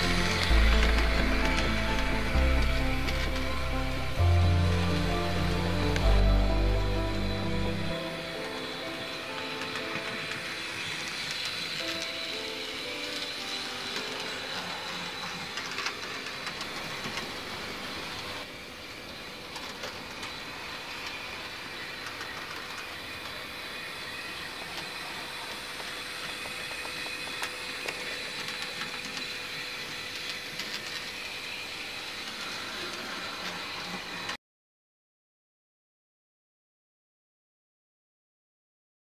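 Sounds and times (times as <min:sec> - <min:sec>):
model train motor whine: 0:00.0 - 0:34.4
wheels clicking over rail joints: 0:09.4 - 0:18.5.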